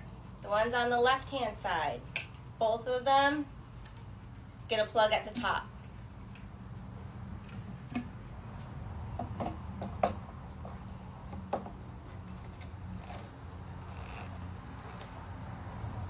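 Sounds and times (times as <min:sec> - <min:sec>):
steady low hum: 0:05.6 - 0:16.0.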